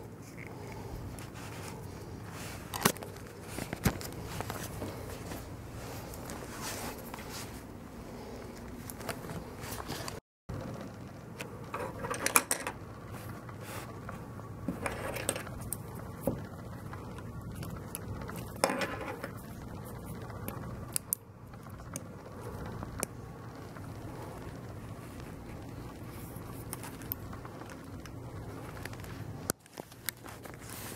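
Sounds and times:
gloves rustling: 0.0 - 10.2, 23.8 - 30.9.

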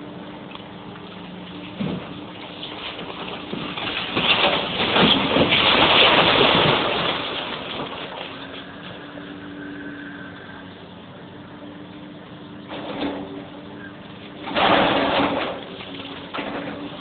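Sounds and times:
excavator diesel engine humming: 0.0 - 17.0
brick wall collapsing: 1.8 - 8.9, 14.4 - 17.0.

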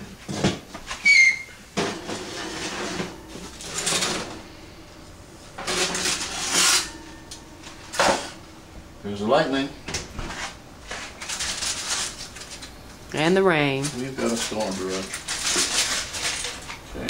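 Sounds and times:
oven door squeaking open: 1.0 - 4.2
metal scraping and sliding: 1.8 - 4.6, 5.6 - 8.3.

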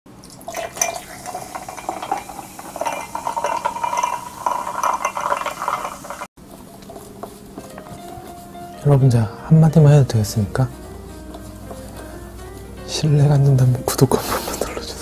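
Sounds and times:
cola pouring and fizzing: 0.1 - 6.3
ice clinking: 0.2 - 6.3.

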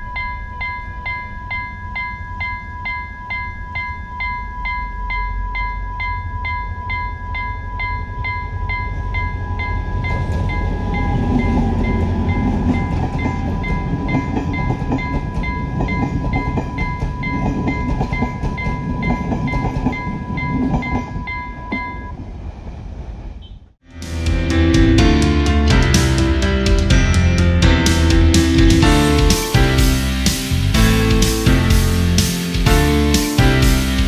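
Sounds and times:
level crossing alarm beeping: 0.0 - 22.2
train rumbling past: 4.6 - 34.0
wheels clattering over rail joints: 9.9 - 21.9.

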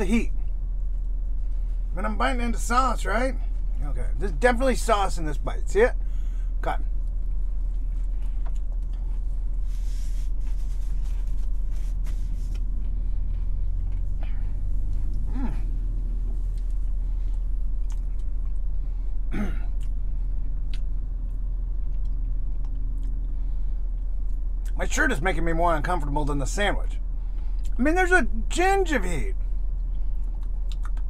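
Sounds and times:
car cabin rumble: 0.0 - 21.6
man chewing food: 6.1 - 24.8, 29.6 - 31.0
mouth clicks: 30.4 - 31.0.

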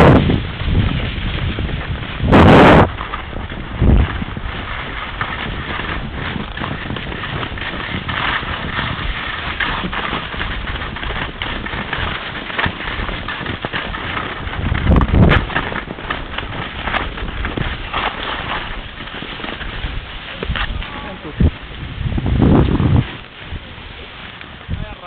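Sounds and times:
skis scraping over snow: 0.0 - 25.0
wind on microphone: 0.0 - 25.0.

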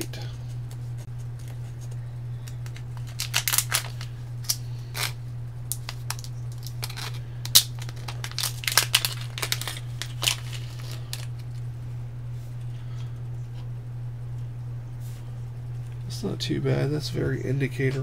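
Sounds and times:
steady low hum: 0.0 - 18.0
plastic bag crinkling: 2.5 - 11.6.

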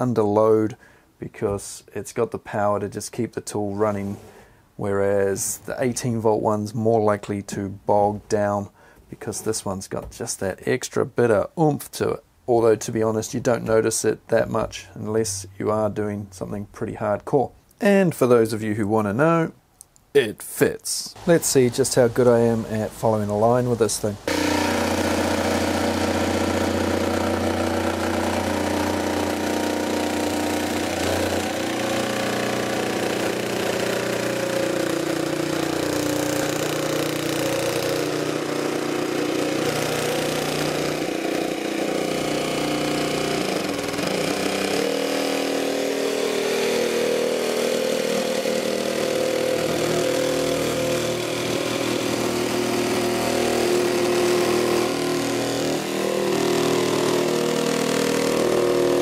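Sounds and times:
jigsaw cutting plywood: 24.3 - 59.0.

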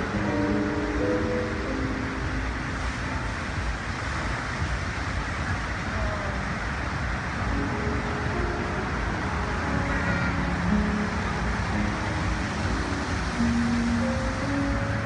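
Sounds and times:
faint show music: 0.0 - 15.0
water jets spraying and splashing: 0.0 - 15.0.

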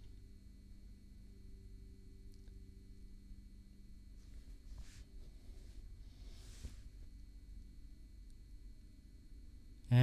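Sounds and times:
faint electrical hum: 0.0 - 10.0
sleeve brushing on wooden table: 4.3 - 6.9.

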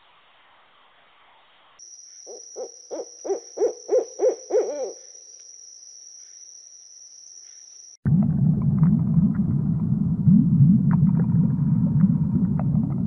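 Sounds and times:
owl hooting: 2.2 - 5.3.

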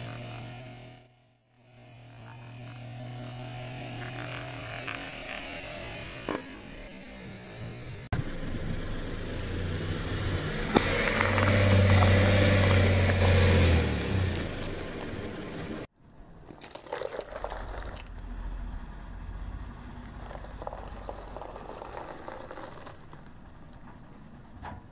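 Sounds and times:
car engine running: 0.0 - 15.9
tyre crushing fruit husk: 10.7 - 14.3.

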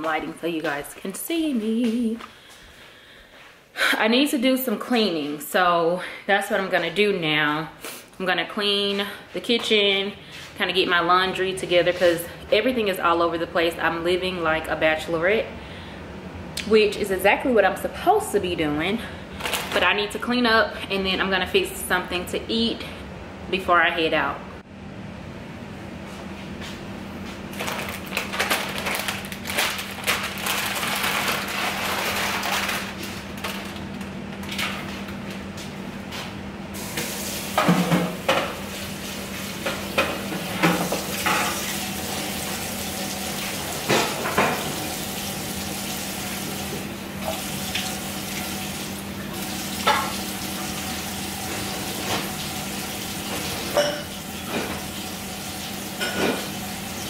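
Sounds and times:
dishes and cutlery clattering: 53.7 - 54.1.

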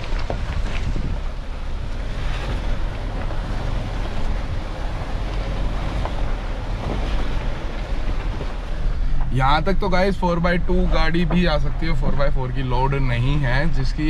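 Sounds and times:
wind buffeting microphone: 0.0 - 9.9
engine pulling under load: 0.0 - 14.0.

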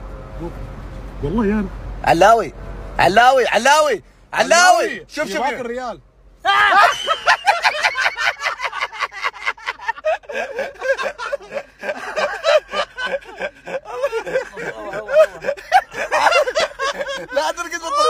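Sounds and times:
people laughing hard: 6.5 - 18.0.

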